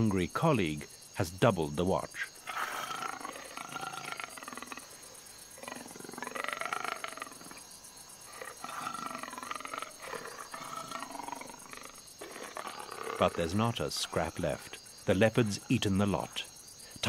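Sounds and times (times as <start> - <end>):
rasping animal calls: 2.4 - 14.3.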